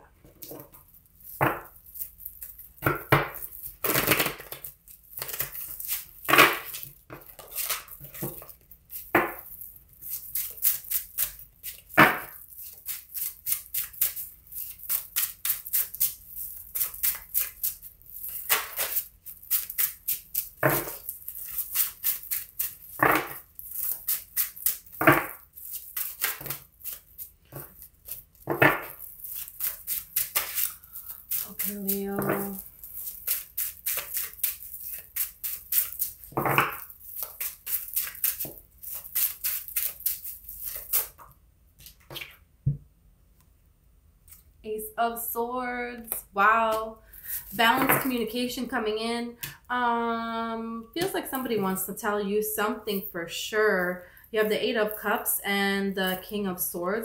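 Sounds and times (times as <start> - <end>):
cards being shuffled: 0.4 - 42.4.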